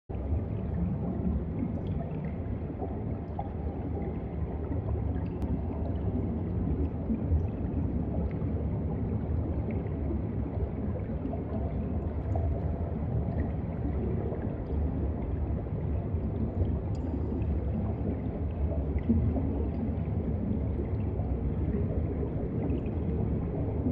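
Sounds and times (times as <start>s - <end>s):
underwater rumble of moving water: 0.1s - 23.9s.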